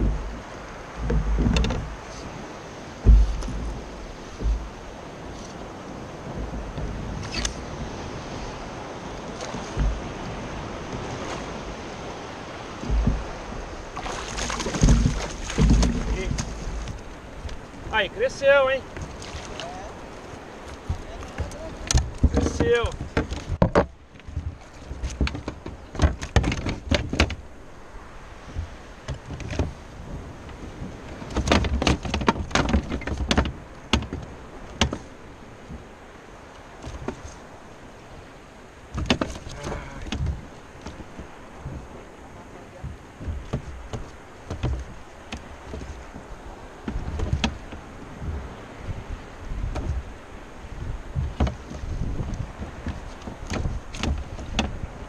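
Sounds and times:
dull low thumps: 0.0s - 2.2s, 2.9s - 5.0s, 9.7s - 11.0s, 12.4s - 18.0s, 41.1s - 42.1s, 42.8s - 55.0s
water lapping against kayak: 0.0s - 55.0s
wind on microphone: 0.0s - 55.0s.

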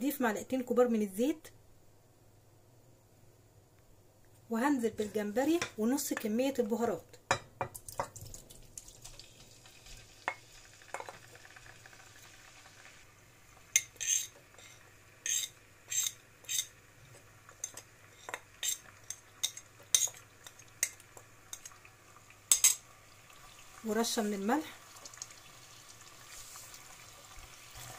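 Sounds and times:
metal spoon scraping ceramic plate: 13.8s - 16.7s.

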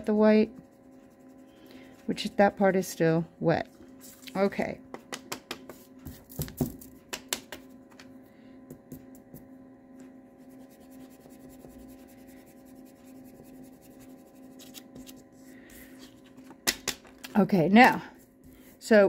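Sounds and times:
electrical hum: 0.0s - 19.0s
eraser rubbing on card: 10.4s - 15.2s.

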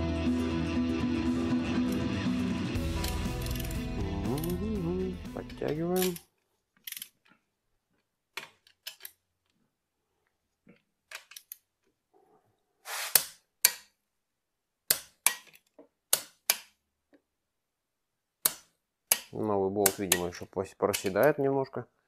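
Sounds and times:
torque wrench clicking: 3.0s - 3.8s, 4.4s - 4.6s.

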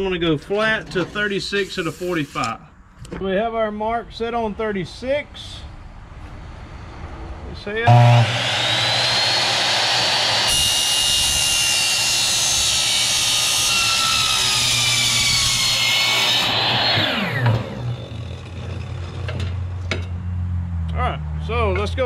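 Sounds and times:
miter saw cutting metal screech: 1.2s - 2.5s, 7.9s - 19.0s
saw blade winding down: 7.9s - 18.6s.

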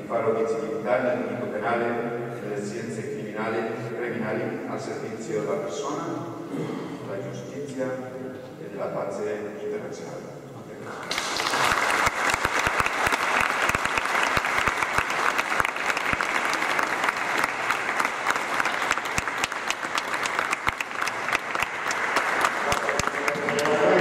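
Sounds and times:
audience applause: 11.0s - 24.0s.

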